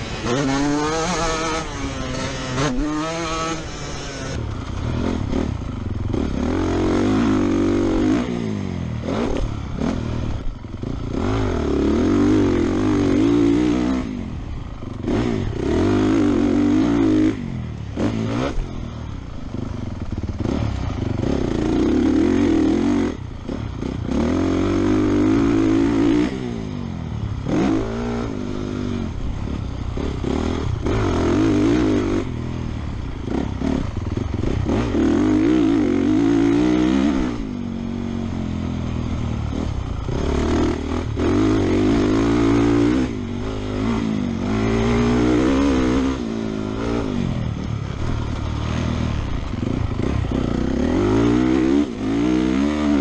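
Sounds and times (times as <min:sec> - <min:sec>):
motocross bike engine revving: 0:00.0 - 0:53.0.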